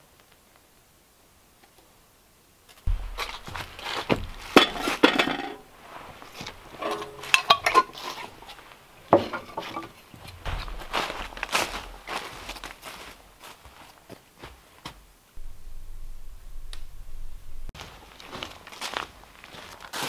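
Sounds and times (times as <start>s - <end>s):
metal cookware clinking: 4.4s - 5.7s, 6.6s - 10.0s.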